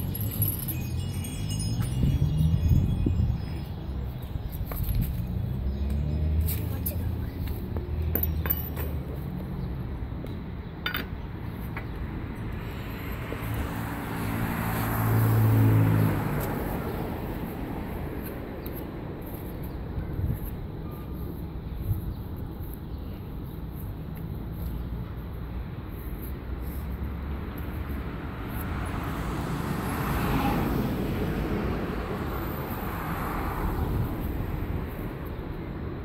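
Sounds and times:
vehicle passing by: 0.0s - 4.1s, 5.1s - 7.2s, 12.5s - 18.2s, 26.8s - 35.6s
wind chimes ringing: 0.0s - 4.8s.

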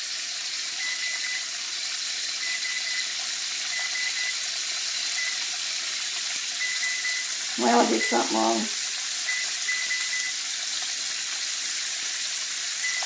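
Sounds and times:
food sizzling in hot oil: 0.0s - 13.0s
stove control panel beeps: 0.7s - 1.6s, 2.4s - 5.6s, 6.6s - 8.5s, 9.2s - 10.5s, 12.7s - 13.0s.

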